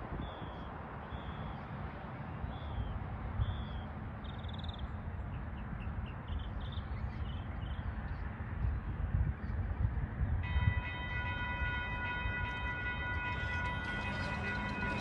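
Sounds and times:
steady low rumble: 11.9 - 15.0.

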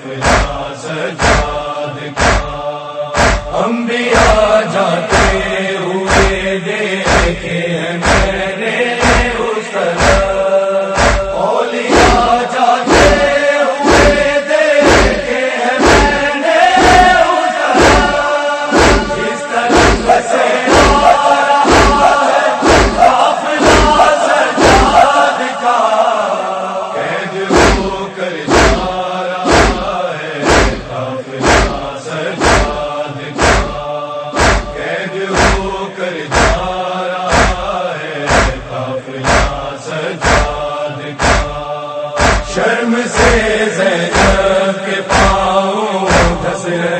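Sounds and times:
heavy rhythmic thump: 0.0 - 25.3, 27.4 - 46.6
men chanting a lament: 0.0 - 46.9.

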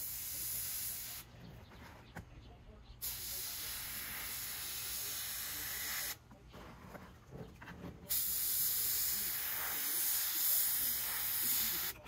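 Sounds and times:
airbrush hissing: 3.0 - 6.2, 8.1 - 12.0.

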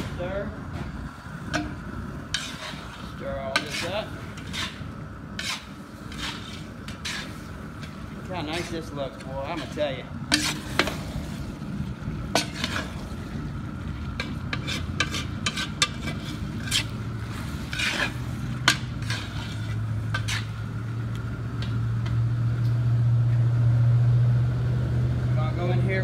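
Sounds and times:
metal paddle scraping pot: 0.0 - 20.8
food sizzling: 0.0 - 21.9
low steady hum: 0.0 - 26.0.

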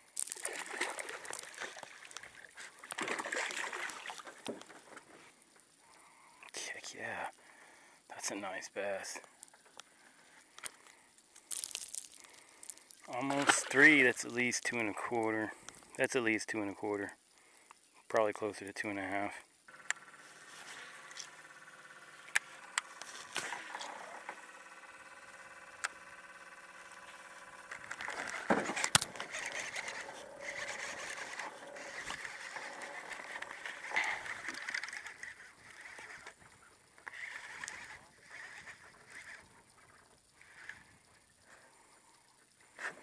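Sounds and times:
fishing reel being cranked: 0.0 - 5.0, 9.1 - 16.0, 19.7 - 42.8
reel and rod clicks: 0.1 - 6.6, 9.2 - 16.1, 19.4 - 43.0.

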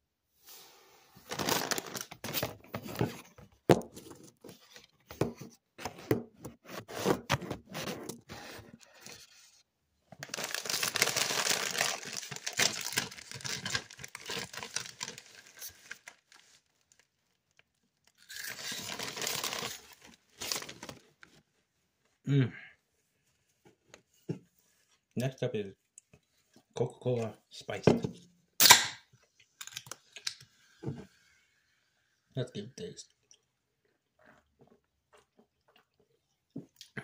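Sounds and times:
foil snack bag crinkling: 1.2 - 2.5, 10.2 - 21.3.

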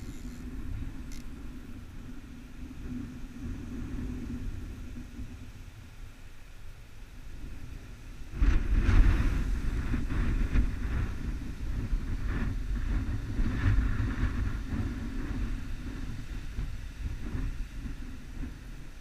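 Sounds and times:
wind buffeting microphone: 7.3 - 19.0.

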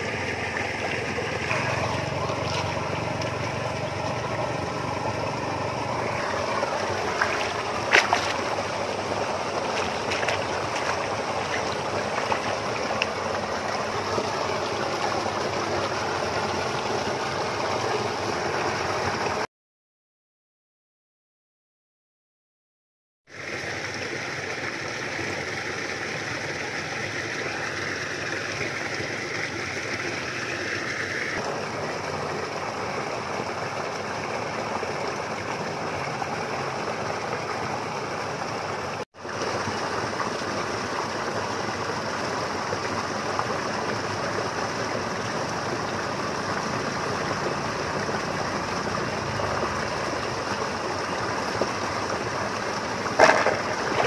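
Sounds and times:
lapping water: 0.0 - 18.1, 45.0 - 54.0
wind: 0.0 - 19.5, 23.3 - 54.0.

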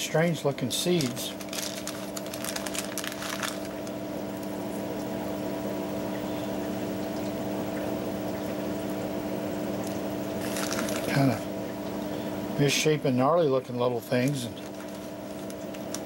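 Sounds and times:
machine humming: 0.0 - 16.0
plastic bag crinkling: 0.8 - 4.0, 10.4 - 11.4, 14.1 - 16.0.

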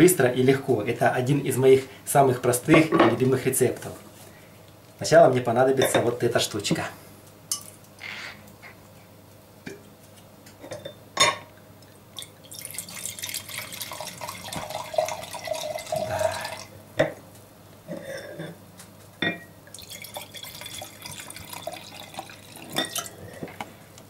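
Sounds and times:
wine pouring into glass: 12.2 - 16.7, 19.7 - 23.4.

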